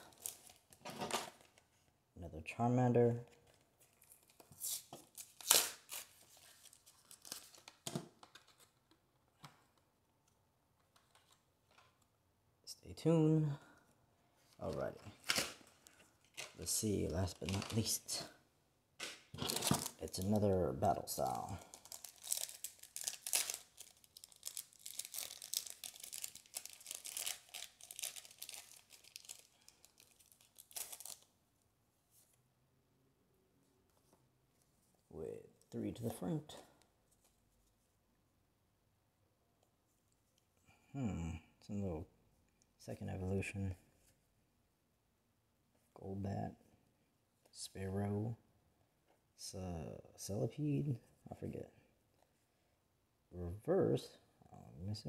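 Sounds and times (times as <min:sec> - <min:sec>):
wrapper ripping: 0:00.0 - 0:01.3, 0:04.7 - 0:07.8, 0:15.2 - 0:18.2, 0:19.4 - 0:20.5, 0:21.2 - 0:31.3
wrapper crinkling: 0:00.0 - 0:01.4, 0:04.0 - 0:07.8, 0:15.2 - 0:18.2, 0:19.4 - 0:20.5, 0:21.2 - 0:31.3.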